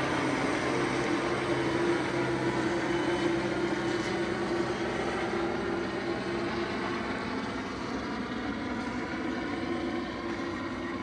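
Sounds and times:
helicopter flying overhead: 0.0 - 11.0.

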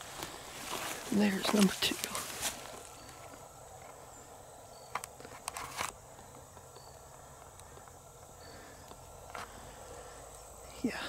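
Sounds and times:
footsteps in dry leaves: 0.0 - 3.3
faint high chirp: 4.1 - 5.3, 6.2 - 7.4.

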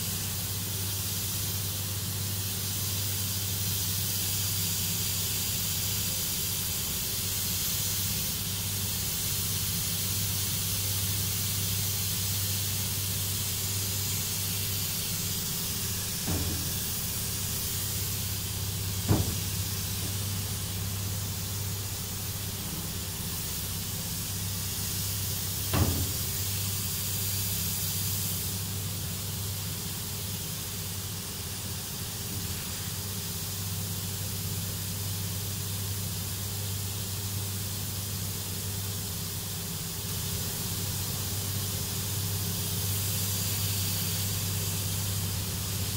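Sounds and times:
paint spray gun hissing: 0.0 - 45.9
ventilation fans humming: 0.0 - 45.9
short knocks: 16.2 - 17.0, 19.0 - 20.2.

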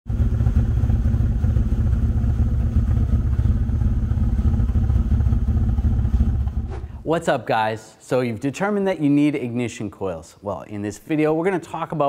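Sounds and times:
car engine idling roughly: 0.1 - 6.7.

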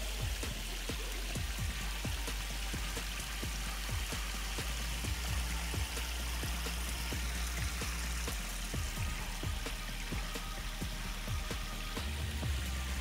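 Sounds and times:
waterfall splashing on rock: 0.0 - 13.0.

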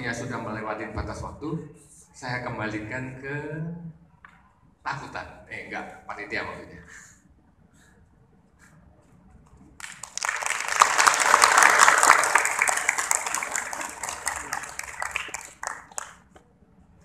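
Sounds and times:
audience applauding: 9.8 - 16.3.

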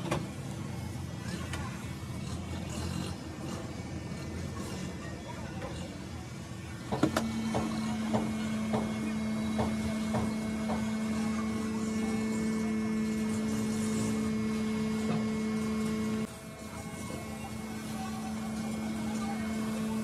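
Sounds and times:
electric machine hum: 7.1 - 20.0.

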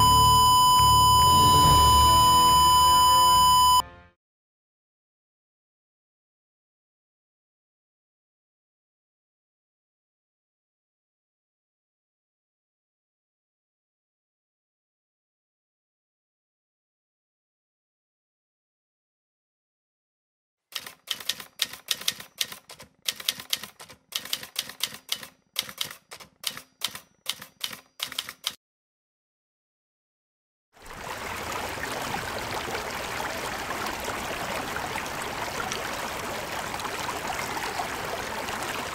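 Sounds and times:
typewriter keys clacking: 20.7 - 28.6
flowing water rushing: 30.8 - 38.9.

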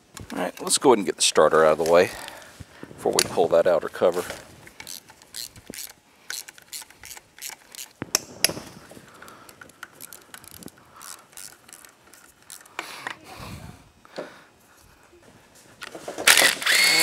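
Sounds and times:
hand ratchet clicking: 4.1 - 12.9, 16.3 - 17.0.

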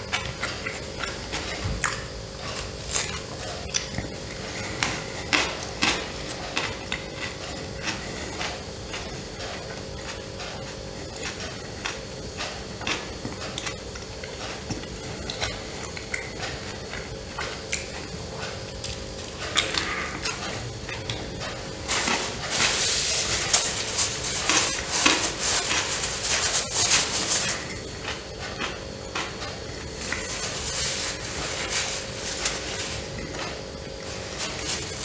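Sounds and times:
chewing a sandwich: 0.0 - 35.0
faint steady hum: 0.0 - 35.0
wet mouth clicks: 3.0 - 4.0.

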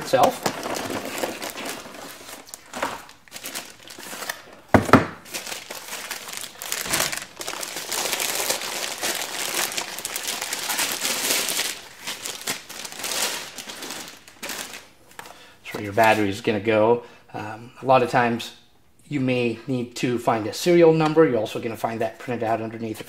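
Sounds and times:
plastic packaging crinkling: 0.0 - 15.3.

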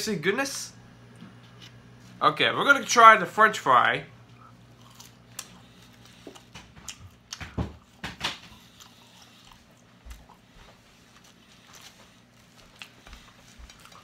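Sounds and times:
person chewing fries: 4.2 - 14.0.

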